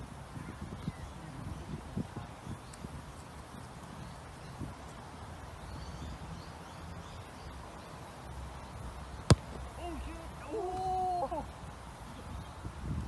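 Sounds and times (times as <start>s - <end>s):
football kick thud: 9.3s - 9.7s.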